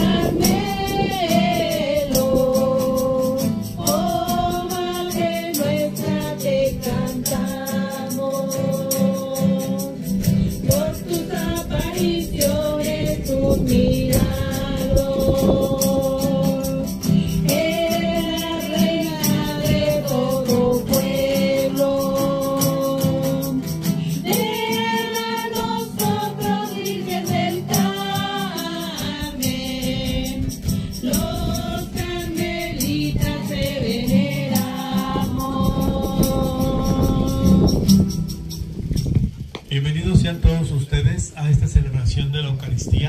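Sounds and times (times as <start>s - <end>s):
group singing a hymn: 0.0s - 38.2s
percussion beat: 0.0s - 40.3s.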